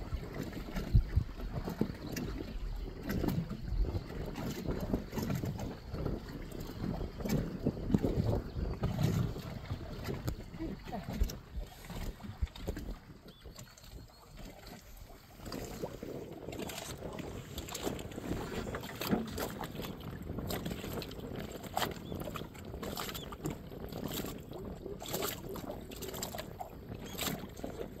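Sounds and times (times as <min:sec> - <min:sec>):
water slapping against hull: 0:00.0 - 0:28.0.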